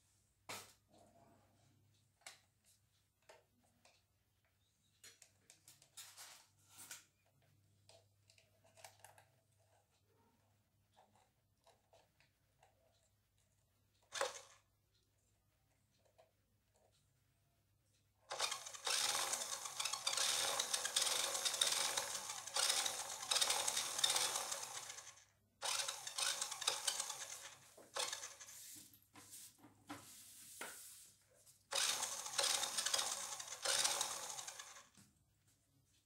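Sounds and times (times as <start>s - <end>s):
toy car electric motor whirring: 14.1s - 14.7s, 18.3s - 28.8s, 31.7s - 35.0s.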